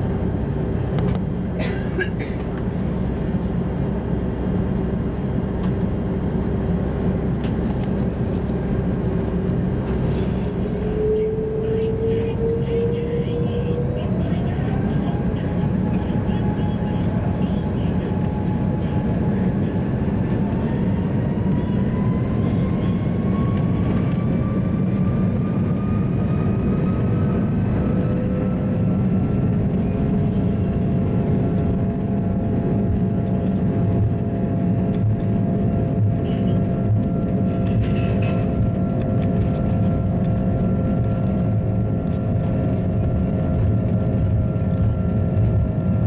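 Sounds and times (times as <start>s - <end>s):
jet engines spooling up: 5.3s - 37.7s.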